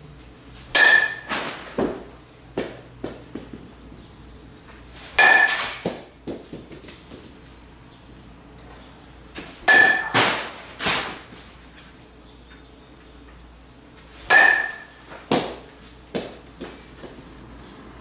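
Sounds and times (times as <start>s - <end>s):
metal bat hitting baseball: 0.7s - 3.2s, 5.1s - 6.9s, 9.6s - 11.2s, 14.2s - 16.8s.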